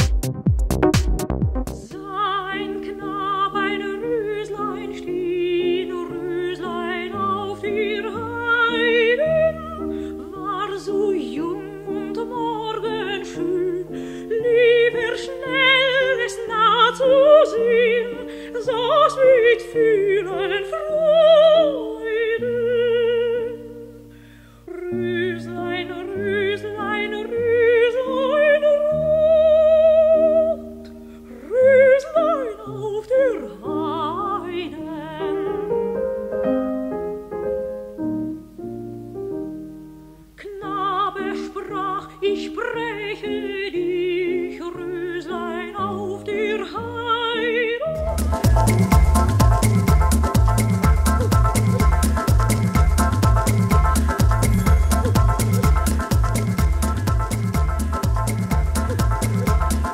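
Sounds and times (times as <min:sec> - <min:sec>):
operatic singing with vibrato: 0:40.4 - 0:59.9.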